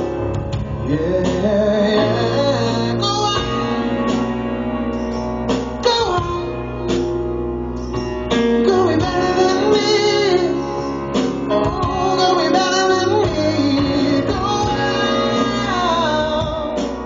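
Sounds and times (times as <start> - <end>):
bass guitar: 0.0 - 17.0
man singing: 0.6 - 4.2, 5.8 - 6.5, 8.5 - 17.0.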